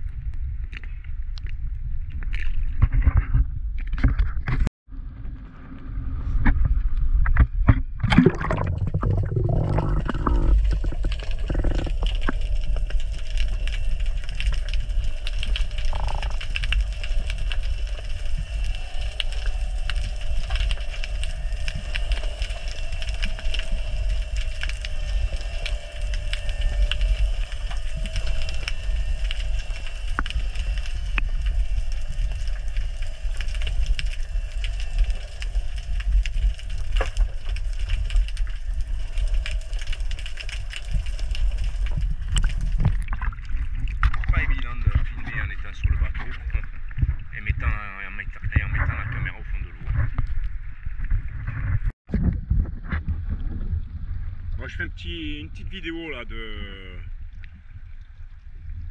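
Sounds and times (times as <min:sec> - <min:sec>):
underwater low rumble: 0:00.0 - 0:58.9
faint steady hum: 0:05.4 - 0:50.9
crackling clicks: 0:07.2 - 0:51.8.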